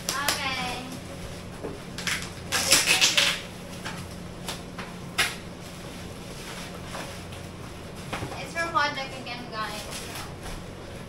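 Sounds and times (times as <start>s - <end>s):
plastic wrapping rustling: 5.6s - 11.0s.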